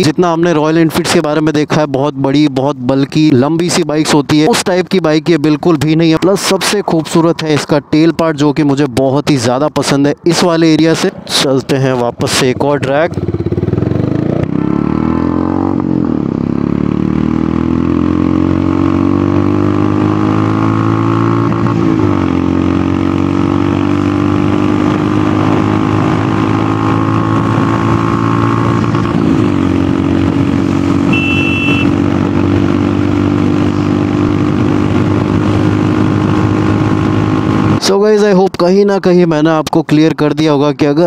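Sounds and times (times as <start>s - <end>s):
motorcycle engine accelerating: 12.1s - 37.9s.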